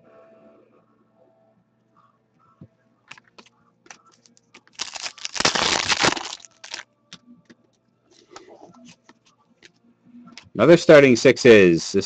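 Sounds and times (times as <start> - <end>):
foil wrapper tearing: 4.2 - 6.8.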